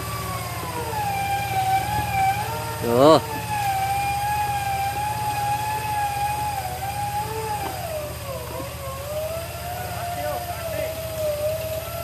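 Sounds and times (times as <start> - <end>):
vehicle engine running: 0.0 - 12.0
winch whining under load: 0.0 - 12.0.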